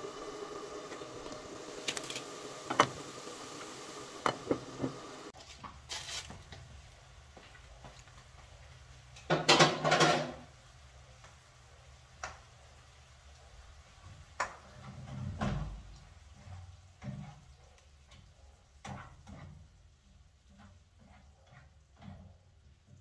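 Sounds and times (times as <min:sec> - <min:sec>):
dishes and utensils clattering: 0:09.2 - 0:10.5.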